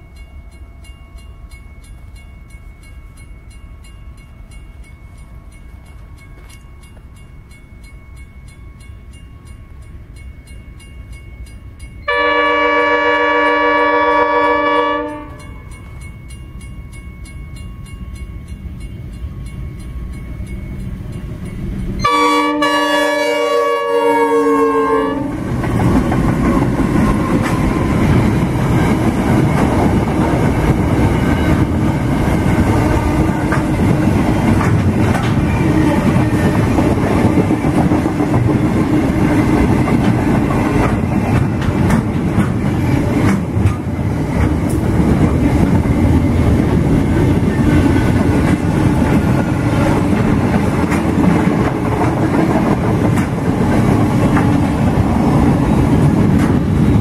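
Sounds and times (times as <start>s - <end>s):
train wheels rumbling on rails: 0.0s - 57.0s
wheels clacking over rail joints: 25.3s - 57.0s.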